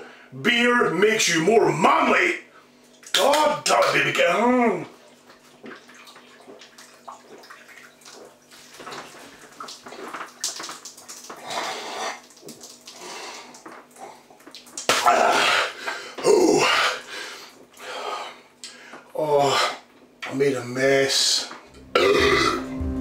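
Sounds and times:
beer splashing and spilling: 4.8 - 17.9
man gulping beer: 21.9 - 22.7.

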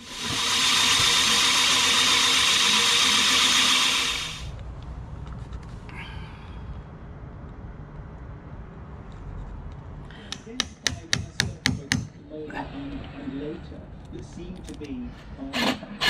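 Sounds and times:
power tool cutting wood: 0.0 - 4.5.

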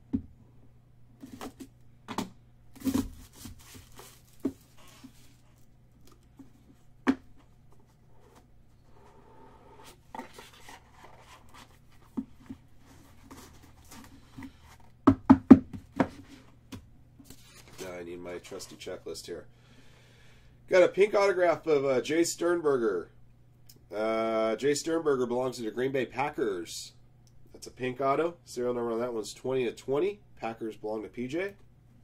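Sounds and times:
card packaging rustling and tearing: 2.8 - 6.3, 10.0 - 12.1, 17.3 - 18.7.

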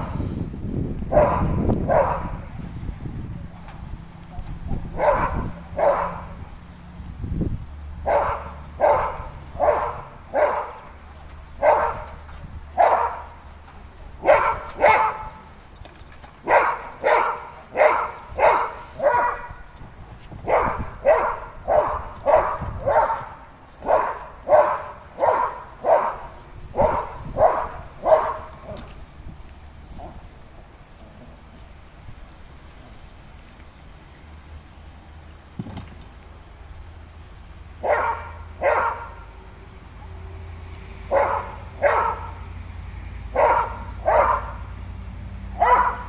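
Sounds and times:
dog barking: 1.1 - 2.4, 4.9 - 6.4, 8.0 - 10.8, 11.6 - 12.1, 12.8 - 13.3, 14.2 - 15.4, 16.5 - 19.6, 20.4 - 28.8, 37.8 - 39.3, 41.1 - 42.4, 43.3 - 44.7, 45.6 - 46.0.

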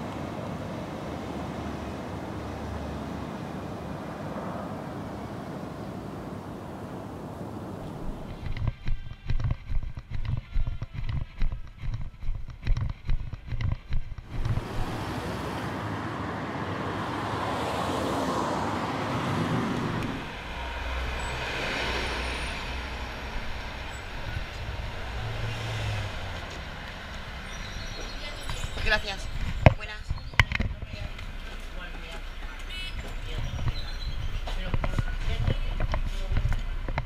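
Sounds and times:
street traffic: 0.0 - 37.0
bus engine rumble: 10.8 - 37.0.

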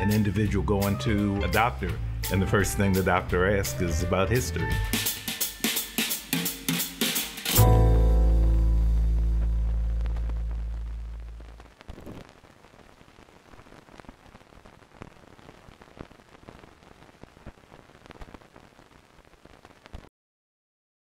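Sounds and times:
faint hiss with crackles and pops: 0.0 - 20.1
music low note: 7.6 - 11.6.

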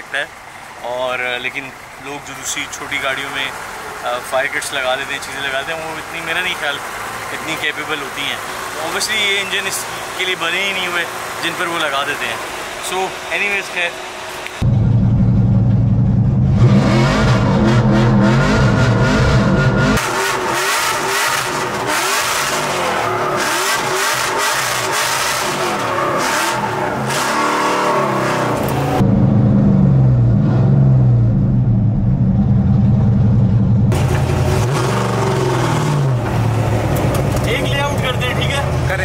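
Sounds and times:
car engine revving hard: 16.4 - 31.3, 33.9 - 39.0.

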